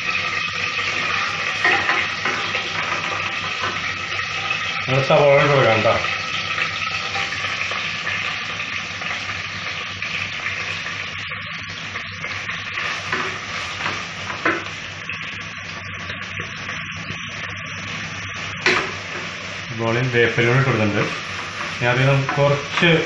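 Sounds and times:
onions sizzling in hot oil: 0:00.0 - 0:23.0
spatula scraping: 0:20.7 - 0:23.0.

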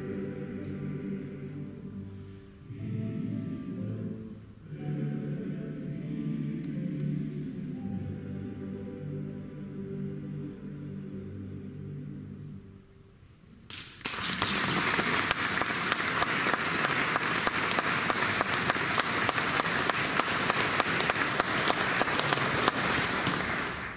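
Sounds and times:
male choir singing chord: 0:00.0 - 0:12.7
audience applause: 0:13.7 - 0:23.9.

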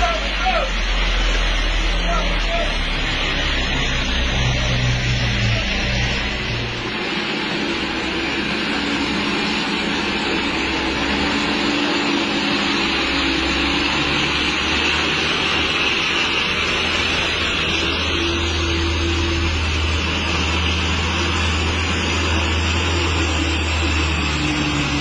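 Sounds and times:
truck engine driving past: 0:00.0 - 0:25.0.

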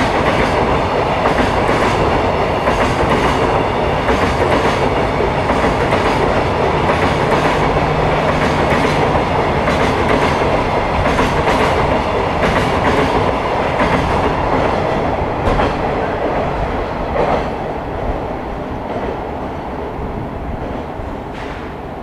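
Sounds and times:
train wheels clacking over rail joints: 0:00.0 - 0:16.4.

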